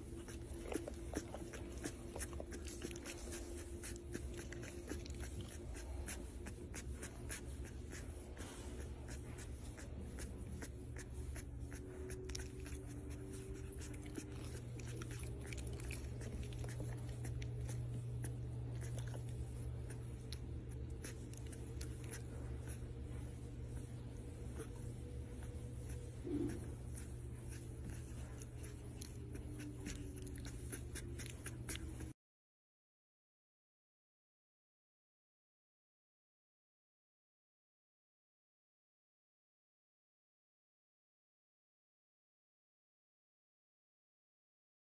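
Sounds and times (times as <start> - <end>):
steady low hum: 0.0 - 32.2
puppy mouth smacking and clicking: 0.2 - 8.0, 11.7 - 22.2, 27.5 - 32.1.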